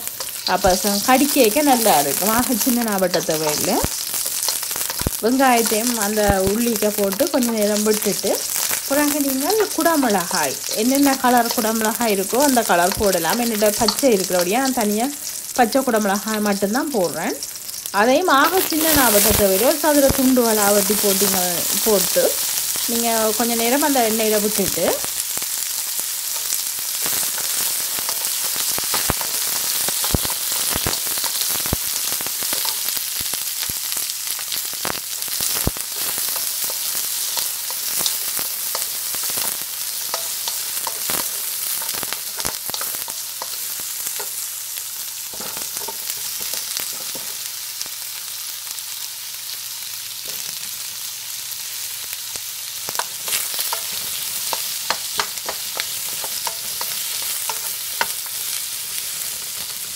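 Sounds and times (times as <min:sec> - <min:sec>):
vegetables sizzling in oil: 0:00.0 - 0:59.9.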